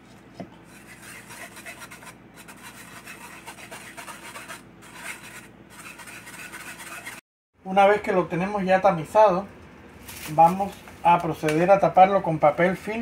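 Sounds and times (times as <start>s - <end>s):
whisk scraping metal sieve: 0.7s - 7.2s, 12.0s - 13.0s.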